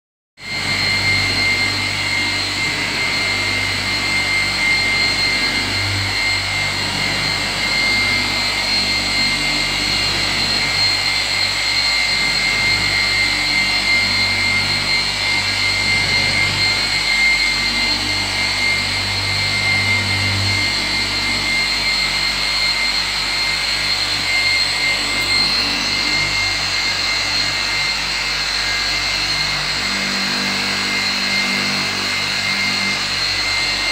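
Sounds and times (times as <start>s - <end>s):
electric polisher whine: 0.4s - 33.9s.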